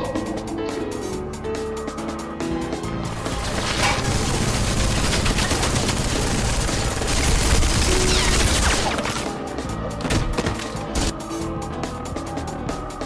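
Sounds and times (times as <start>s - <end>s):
rapid automatic rifle fire: 3.7s - 9.3s.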